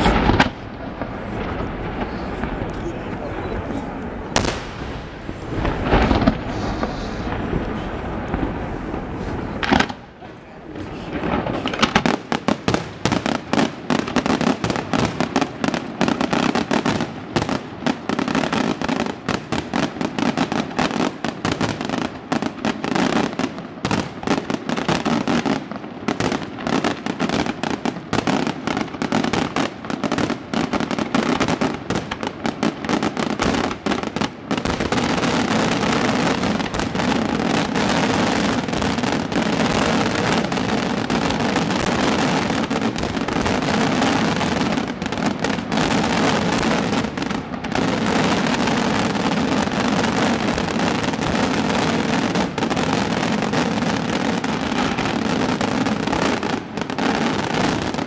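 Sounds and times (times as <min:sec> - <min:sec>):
firework shells bursting: 0:00.0 - 0:10.2, 0:10.8 - 0:18.8.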